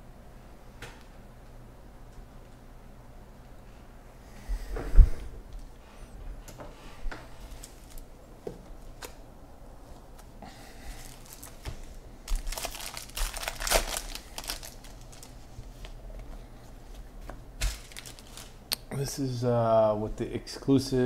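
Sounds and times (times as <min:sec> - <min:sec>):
foil wrappers crinkling and tearing: 0:07.4 - 0:08.0, 0:10.9 - 0:16.0, 0:17.6 - 0:18.7.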